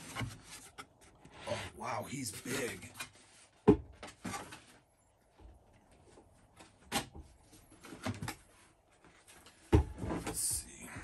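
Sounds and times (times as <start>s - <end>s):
cardboard scraping: 0.0s - 1.8s.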